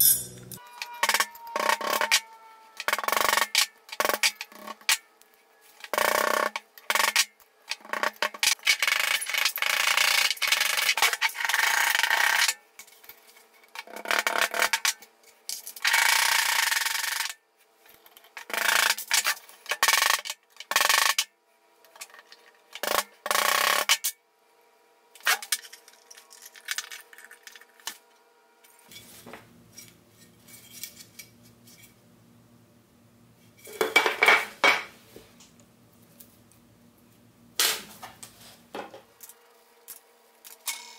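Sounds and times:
tools clattering on bench: 0:33.6 - 0:34.9.

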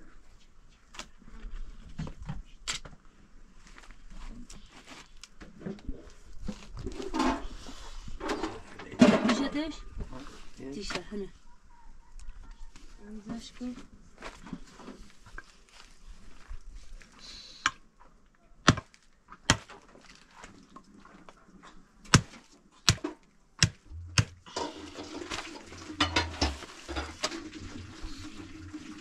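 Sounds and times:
rustling noise: 0:12.7 - 0:17.2, 0:23.9 - 0:29.0
hatchet chopping bone on wood: 0:22.1 - 0:24.4.

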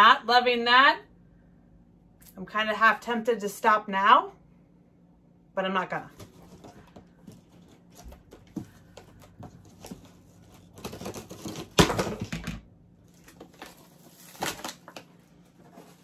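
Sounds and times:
cardboard rustling: 0:06.1 - 0:12.4, 0:13.0 - 0:16.0
cardboard tearing and crackling: 0:09.6 - 0:12.4, 0:13.1 - 0:16.0.

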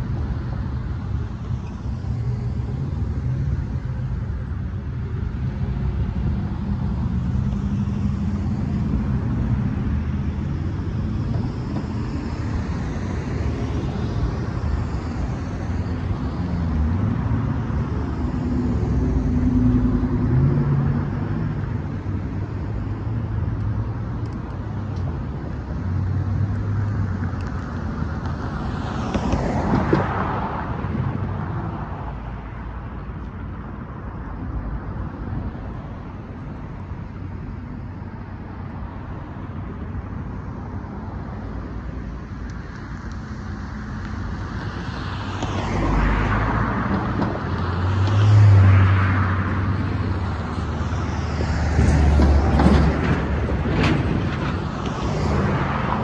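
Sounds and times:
cars and trucks driving past: 0:00.0 - 0:56.0.

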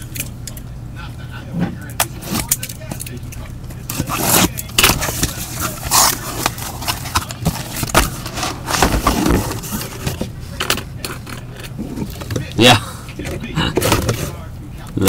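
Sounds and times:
cardboard boxes knocking and scraping: 0:06.0 - 0:10.1.

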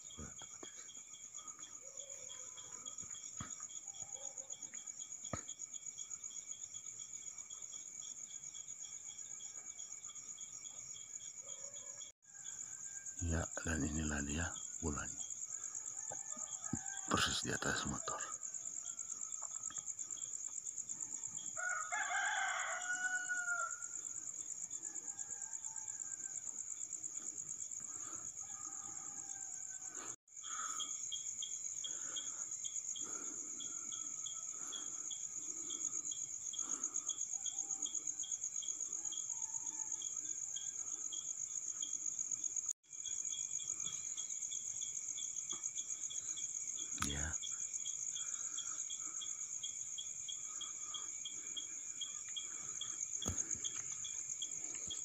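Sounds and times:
crickets chirring: 0:00.0 - 0:55.0
pulsing insect call: 0:00.0 - 0:55.0
rooster crowing: 0:15.6 - 0:19.5, 0:21.1 - 0:26.6, 0:28.0 - 0:30.2, 0:36.6 - 0:41.1.

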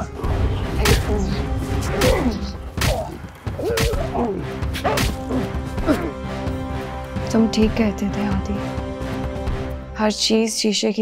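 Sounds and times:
dramatic background music: 0:00.0 - 0:11.0
pained grunts and groans: 0:02.1 - 0:06.2
punch and kick thwacks: 0:04.8 - 0:05.2.

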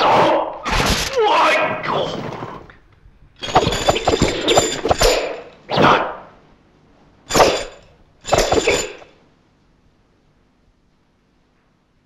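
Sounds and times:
nunchaku swishing through air: 0:03.4 - 0:06.3, 0:07.3 - 0:09.1
sharp clacks: 0:07.3 - 0:09.1.

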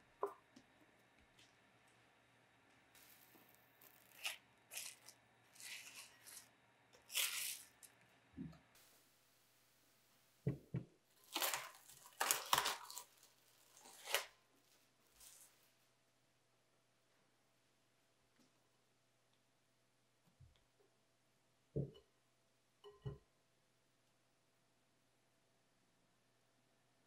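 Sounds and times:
cling film crinkling: 0:03.0 - 0:07.9, 0:11.2 - 0:15.6.

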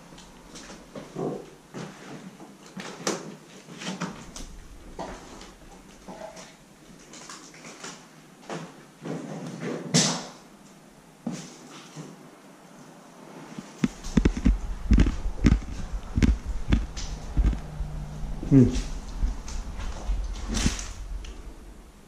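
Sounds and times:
knocks and scrapes: 0:13.6 - 0:21.7
footsteps on littered floor: 0:13.8 - 0:21.4.

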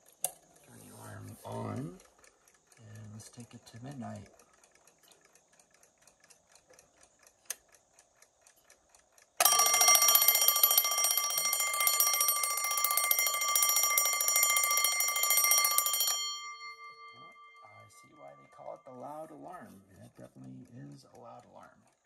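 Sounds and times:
clock ticking faintly: 0:00.0 - 0:22.0
alarm bell ringing: 0:09.4 - 0:19.2.

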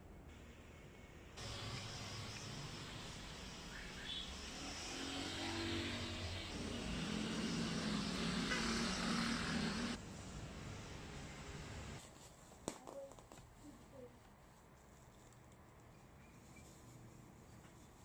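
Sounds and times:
vehicle engine hum: 0:01.4 - 0:10.0
road noise: 0:01.4 - 0:12.0.

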